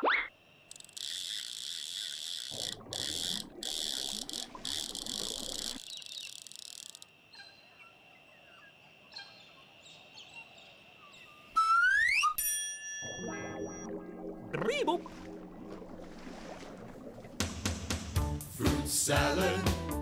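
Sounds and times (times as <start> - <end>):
crickets chirring: 0.1 - 12.2.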